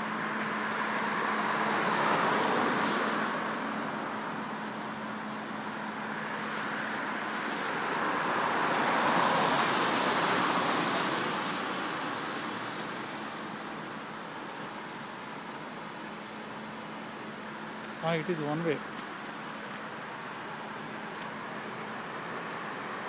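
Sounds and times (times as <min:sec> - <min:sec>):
car passing: 0:00.0 - 0:15.7
background traffic: 0:00.0 - 0:23.0.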